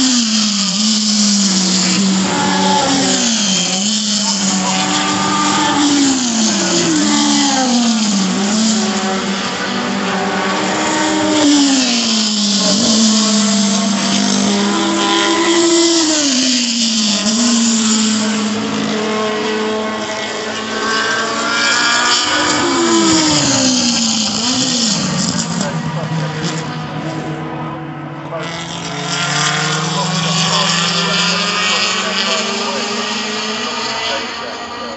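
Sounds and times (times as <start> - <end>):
racing car engines passing: 0.0 - 34.9.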